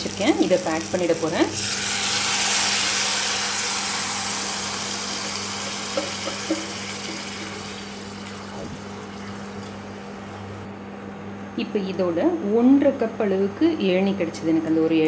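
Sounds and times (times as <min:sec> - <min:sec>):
rice sizzling in hot oil: 0:00.0 - 0:08.5
steady low hum: 0:00.0 - 0:15.0.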